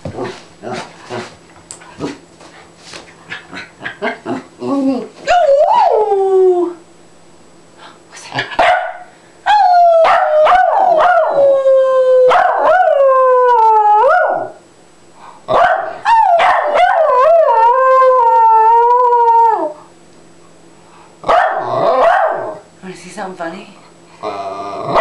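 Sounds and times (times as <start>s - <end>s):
small dog howling and yelping: 4.8s - 6.8s, 9.5s - 14.6s, 16.0s - 19.8s.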